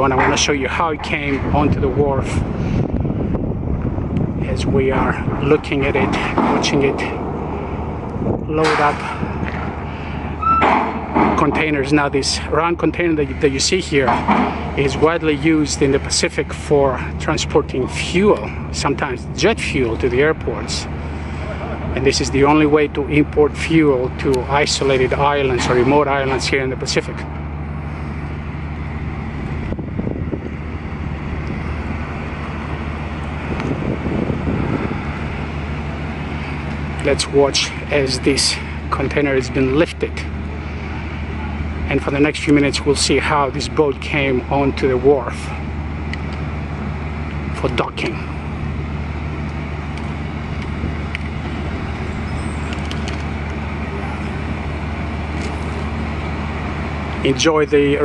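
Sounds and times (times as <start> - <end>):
wind noise on microphone: 0.0 - 12.1, 27.2 - 37.4, 48.4 - 57.1
low machinery drone: 0.0 - 58.0.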